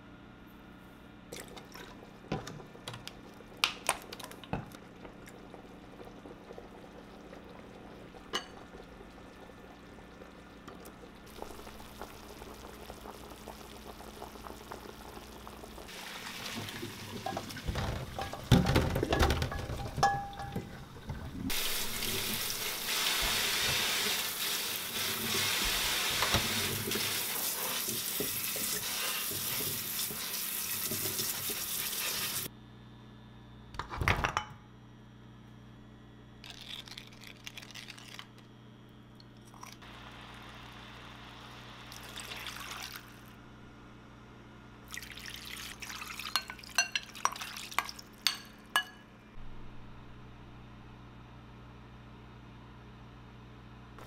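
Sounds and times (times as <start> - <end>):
pot boiling and bubbling: 1.4 - 32.5, 39.0 - 43.5, 44.8 - 49.5.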